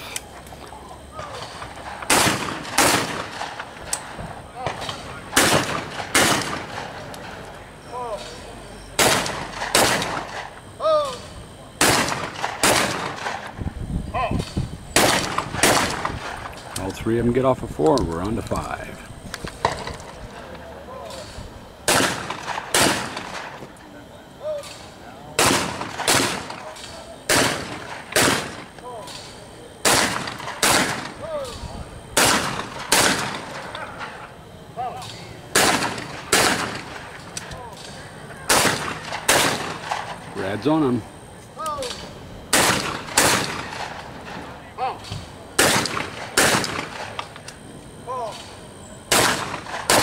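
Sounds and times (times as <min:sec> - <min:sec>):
shotgun shots echoing: 0:01.2 - 0:03.7, 0:04.6 - 0:07.1, 0:09.0 - 0:10.4, 0:11.8 - 0:13.5, 0:15.0 - 0:16.4, 0:21.9 - 0:23.6, 0:25.4 - 0:28.7, 0:29.8 - 0:31.2, 0:32.2 - 0:33.8, 0:35.5 - 0:37.1, 0:38.5 - 0:40.2, 0:42.5 - 0:44.1, 0:45.6 - 0:47.2, 0:49.1 - 0:50.0.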